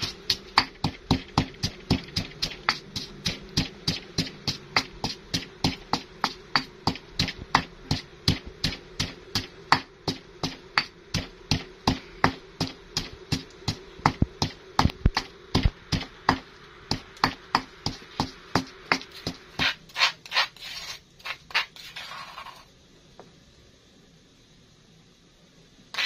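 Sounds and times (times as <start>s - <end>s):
pestle pounding in stone mortar: 0.0s - 20.2s.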